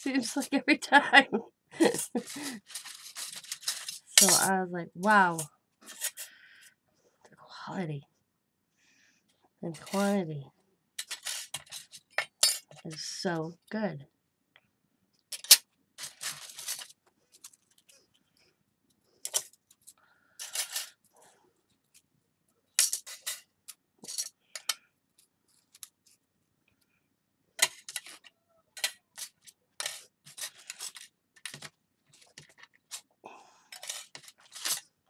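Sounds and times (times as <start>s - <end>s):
metal pieces clinking: 1.9s - 4.5s, 11.0s - 12.9s, 22.8s - 23.4s, 24.0s - 24.8s, 27.6s - 31.7s, 33.7s - 34.8s.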